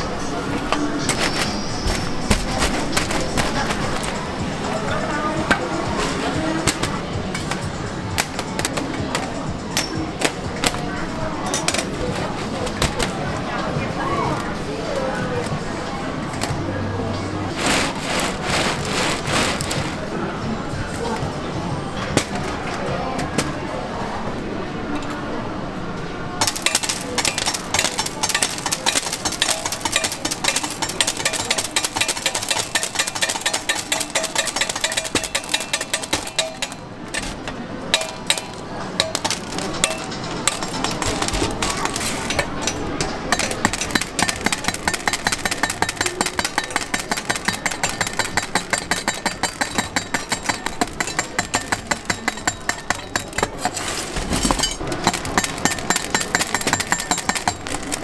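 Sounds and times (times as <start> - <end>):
cleaver chopping candy on steel: 26.4 - 58.0.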